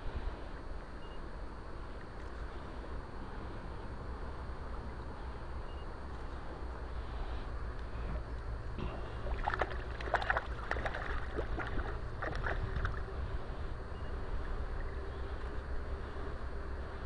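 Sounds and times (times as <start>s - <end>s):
steady low rumble: 0.0s - 17.0s
fish splashing in water: 8.8s - 13.1s.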